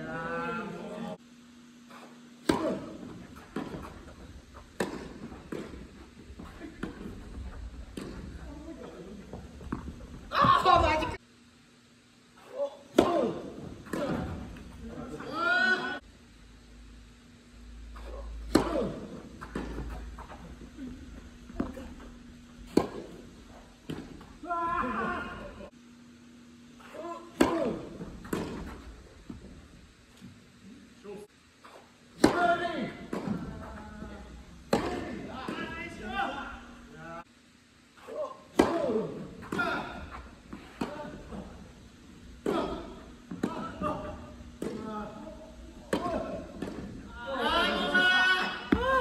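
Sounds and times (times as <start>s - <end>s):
low steady hum: 0.0s - 49.0s
tennis balls struck by racquets: 1.9s - 11.2s, 12.9s - 15.0s, 17.9s - 24.5s, 27.3s - 30.4s, 31.6s - 36.7s, 38.5s - 47.1s, 48.6s - 49.0s
tennis ball pops echoing: 2.4s - 8.3s, 22.6s - 24.3s, 27.4s - 29.4s, 34.7s - 35.2s, 45.9s - 46.9s.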